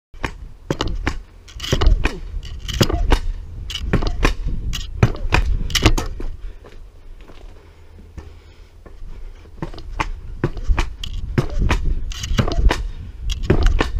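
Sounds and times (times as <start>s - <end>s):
pogo stick clacking on asphalt: 0.2s - 6.4s, 9.6s - 13.9s.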